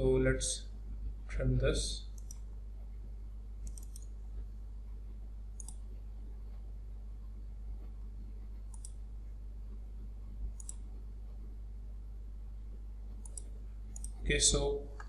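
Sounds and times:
steady low hum: 0.0s - 15.0s
computer mouse clicking: 2.1s - 2.5s, 3.6s - 4.2s, 5.6s - 5.9s, 8.6s - 9.0s, 10.5s - 10.9s, 13.1s - 14.2s.

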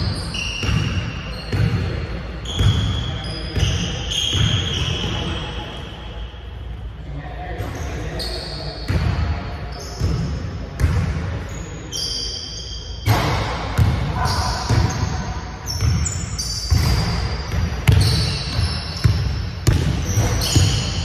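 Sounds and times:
sneaker squeaks: 0.0s - 6.6s, 7.6s - 21.0s
basketballs bouncing on hardwood: 16.7s - 21.0s.

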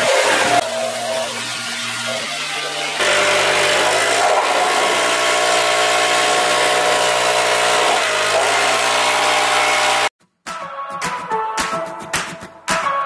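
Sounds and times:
power tool motor whining: 0.0s - 10.1s.

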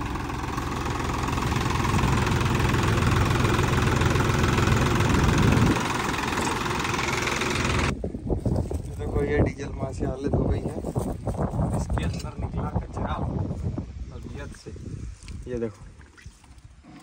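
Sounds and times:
tractor diesel engine idling: 0.0s - 7.9s.

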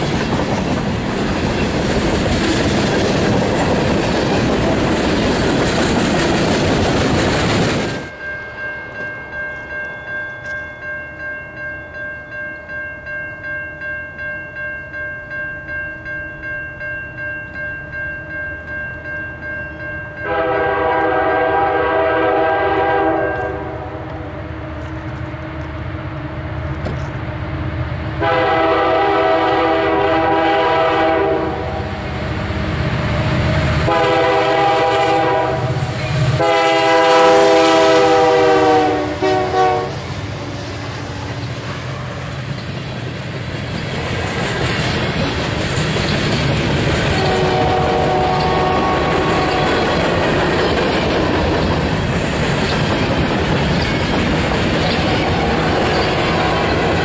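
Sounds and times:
grade-crossing bell ringing: 8.0s - 25.4s, 28.2s - 57.0s
locomotive horn blasts: 20.2s - 24.3s, 28.2s - 32.0s, 33.8s - 40.0s, 47.2s - 49.8s.

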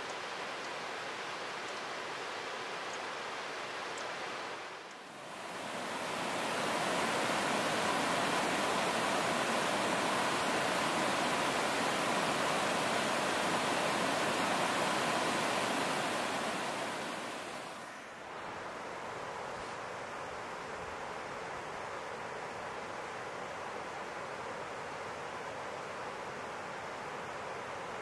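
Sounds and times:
stream rushing over rocks: 0.2s - 20.0s.

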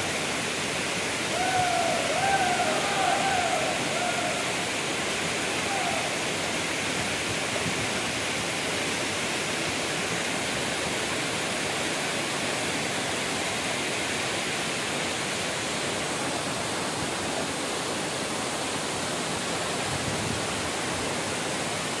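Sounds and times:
waterfall pouring: 0.0s - 15.6s.

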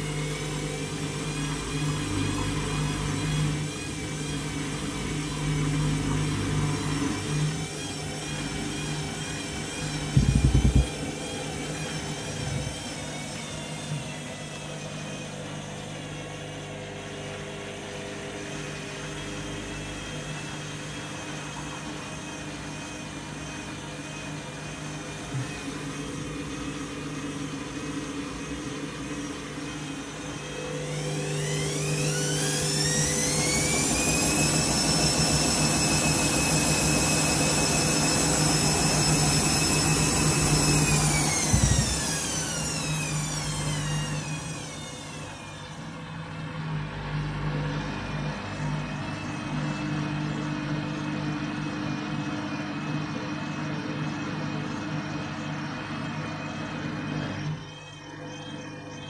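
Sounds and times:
drum motor whine: 0.0s - 59.0s
washing machine humming: 0.0s - 59.0s
knock in washing machine: 10.1s - 11.0s, 41.4s - 42.0s.

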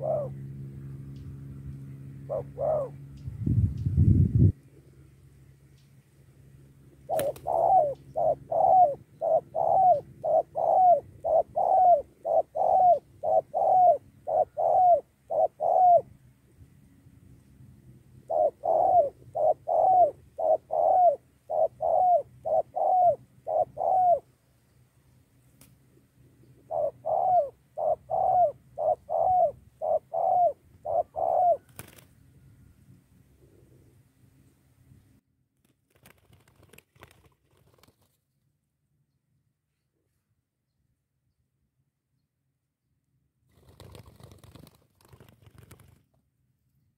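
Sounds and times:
dove cooing: 0.0s - 0.6s, 2.2s - 3.1s, 7.0s - 16.1s, 18.2s - 24.3s, 26.4s - 32.0s.

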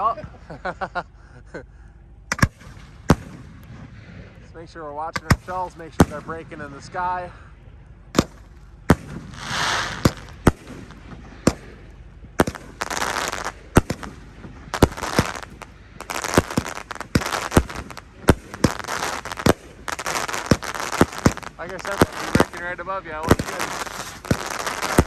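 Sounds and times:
firework bangs: 2.3s - 7.1s, 8.1s - 25.0s
firework crackling hiss: 8.2s - 25.0s.

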